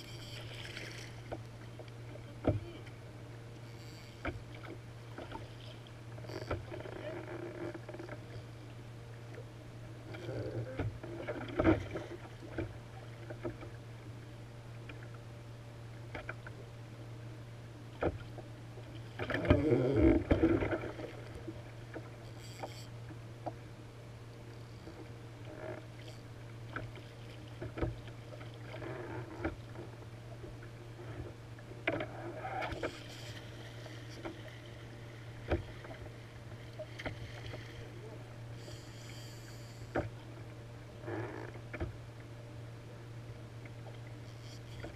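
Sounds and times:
steady low hum: 0.0 - 44.9
water slapping hull: 18.0 - 23.7, 25.0 - 38.6.

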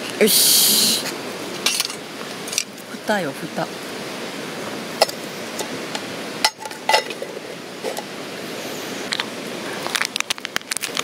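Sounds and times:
steady background hiss: 0.0 - 11.0
metal lid clinking: 6.4 - 8.1
coffee sachet crinkling and tearing: 9.8 - 11.0.

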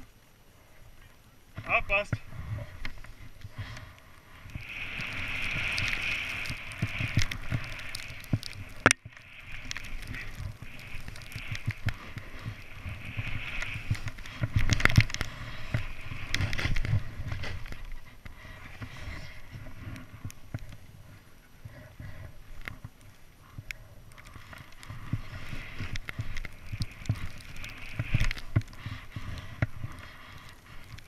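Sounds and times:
snow hissing under board: 1.9 - 20.5, 24.4 - 31.0.

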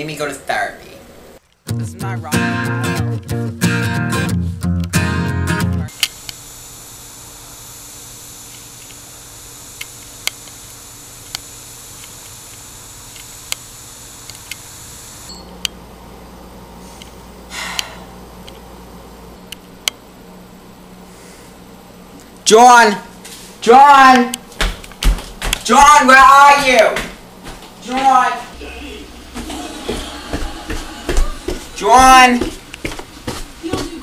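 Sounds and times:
guitar music: 1.7 - 5.9
camcorder hiss: 5.9 - 15.5
low indoor hum: 5.9 - 34.0.

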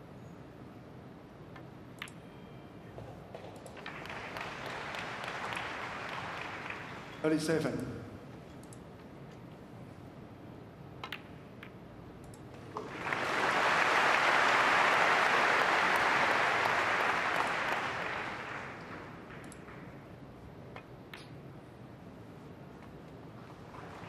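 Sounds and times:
snooker balls clicking: 3.0 - 5.5, 11.0 - 12.9, 18.8 - 21.6
audience applause: 3.8 - 7.5, 12.8 - 20.0, 23.7 - 24.0.

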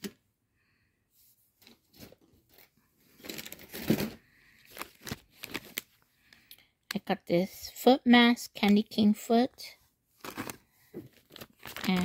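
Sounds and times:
packaging rustling and crinkling: 1.6 - 6.0, 10.2 - 12.0.

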